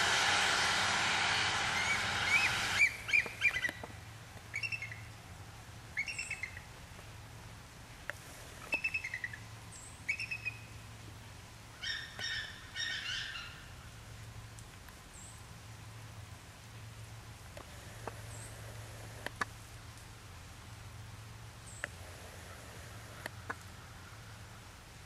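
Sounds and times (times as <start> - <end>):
rushing noise: 0.0 - 3.4.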